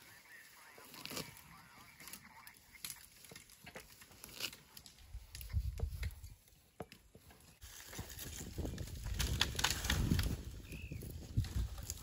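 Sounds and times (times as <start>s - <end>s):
grass being torn up: 0.8s - 6.2s, 7.6s - 10.4s
heavy steps in dry undergrowth: 3.1s - 12.0s
twigs snapping: 8.9s - 10.4s.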